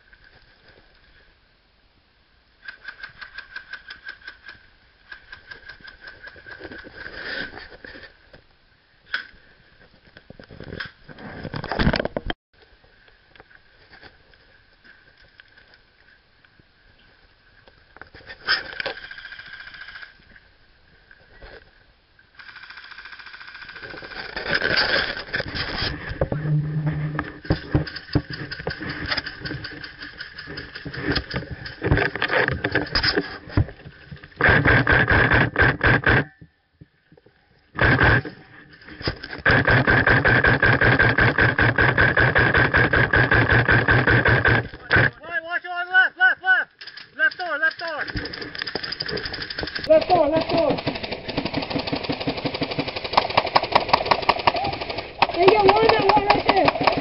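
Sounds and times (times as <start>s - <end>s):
airsoft guns firing rapid bursts: 22.4s - 24.2s, 39.4s - 44.6s, 46.9s - 57.0s.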